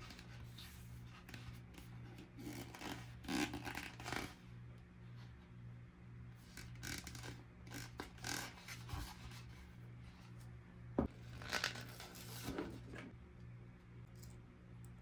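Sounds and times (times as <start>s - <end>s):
packaging rustling and scraping: 11.2s - 13.1s.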